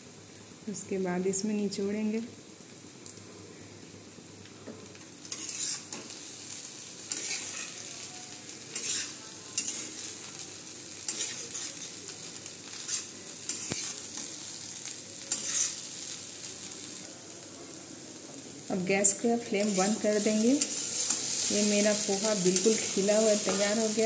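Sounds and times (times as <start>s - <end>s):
faint sizzle from pan: 0.0s - 24.0s
metal spatula scraping a pan: 5.3s - 6.1s, 7.1s - 8.0s, 8.7s - 10.2s, 11.1s - 12.0s, 12.7s - 14.3s, 15.3s - 15.9s.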